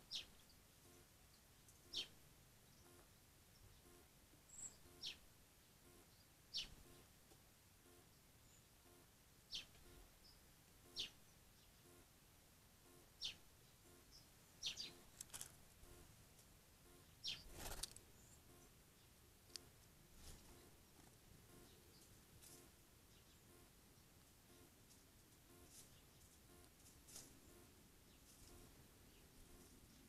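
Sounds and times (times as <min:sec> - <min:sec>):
wingbeats: 0:17.3 - 0:18.0.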